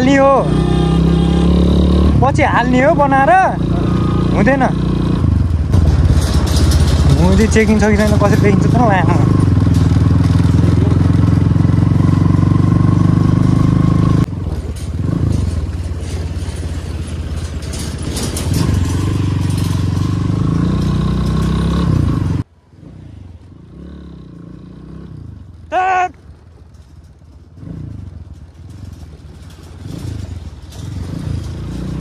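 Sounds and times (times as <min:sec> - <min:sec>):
motorcycle engine running: 0:00.0 - 0:22.5.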